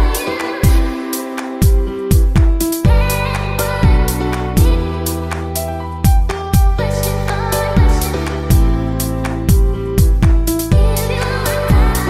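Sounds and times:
booming kick drum beat: 1.7 - 3.1, 9.5 - 11.1.

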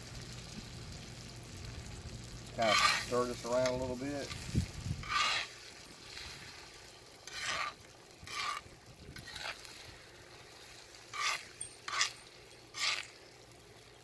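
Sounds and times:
faint sizzle: 0.0 - 14.0
metal spoon scraping griddle: 2.6 - 6.3, 7.2 - 9.7, 11.0 - 13.2.

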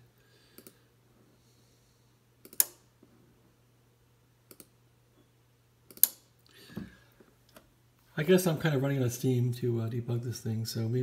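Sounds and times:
faint steady hum: 0.0 - 11.0
computer mouse click: 0.6 - 0.8, 2.4 - 2.8, 4.5 - 4.8, 5.9 - 6.2.

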